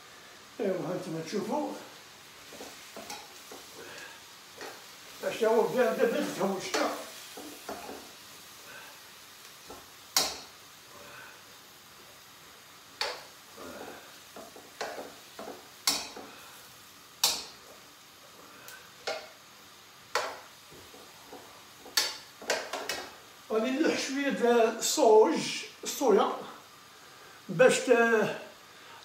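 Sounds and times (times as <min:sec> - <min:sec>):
frying hiss: 0:00.0 - 0:29.0
utensil clacking against wok: 0:09.7 - 0:10.5, 0:14.4 - 0:16.3, 0:17.2 - 0:17.6, 0:20.1 - 0:23.2.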